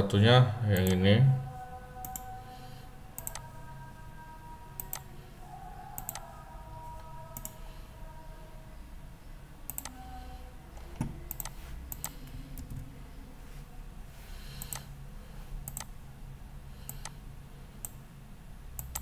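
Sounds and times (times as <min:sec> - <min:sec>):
faint steady hum: 0:00.0 - 0:19.0
computer mouse clicks: 0:02.0 - 0:02.3, 0:03.2 - 0:03.5, 0:04.8 - 0:05.1, 0:06.0 - 0:06.2, 0:07.4 - 0:07.6, 0:09.7 - 0:10.0, 0:10.8 - 0:12.8, 0:14.6 - 0:14.9, 0:15.6 - 0:16.0, 0:16.8 - 0:17.2, 0:17.8 - 0:18.0, 0:18.8 - 0:19.0.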